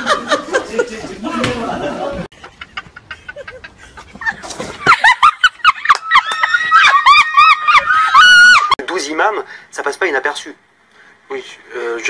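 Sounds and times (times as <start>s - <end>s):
high-pitched shrieking laughter: 4.9s - 8.8s.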